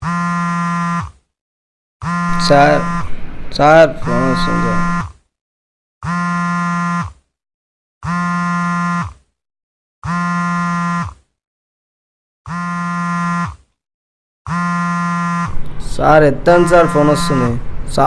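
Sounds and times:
telephone ringing: 2.0s - 3.1s, 3.7s - 5.0s.

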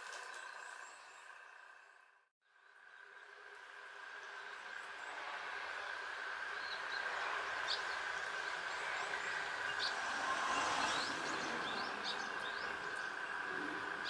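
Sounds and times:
steady outdoor hum: 0.0s - 14.0s
small birds chirping: 2.8s - 14.0s.

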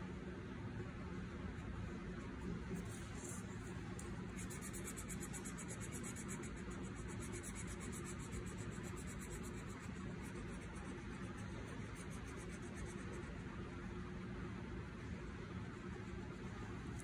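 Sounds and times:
steady low hum: 0.0s - 17.0s
felt-tip pen scratching on paper: 2.1s - 13.5s.

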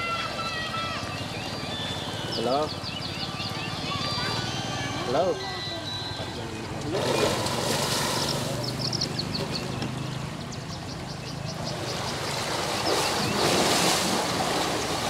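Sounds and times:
elephant splashing in water: 6.7s - 10.4s, 11.7s - 15.0s.

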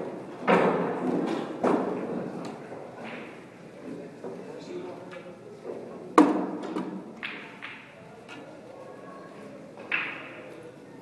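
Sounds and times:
pool balls clicking: 6.2s - 8.0s, 9.8s - 10.5s.

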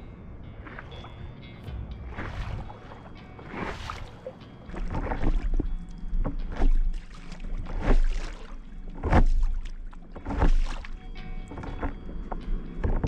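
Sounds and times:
low wind rumble: 0.0s - 6.5s
paddle strokes through water: 0.6s - 13.0s
water lapping at board: 0.6s - 13.0s.

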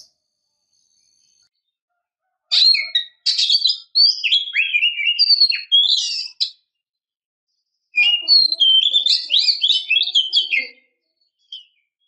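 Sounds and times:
bird singing whistled notes: 2.6s - 6.7s, 7.9s - 12.0s.

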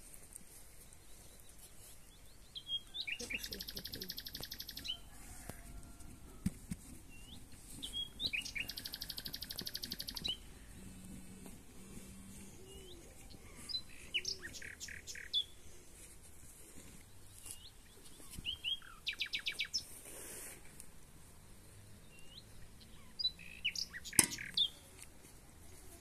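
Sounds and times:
songbirds chirping: 0.0s - 26.0s.

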